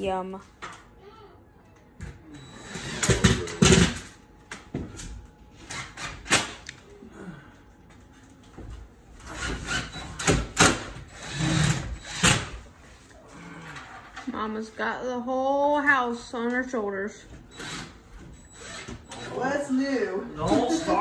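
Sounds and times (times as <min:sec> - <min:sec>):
cordless drill driving screws: 0:09.3 - 0:12.5, 0:17.5 - 0:19.3.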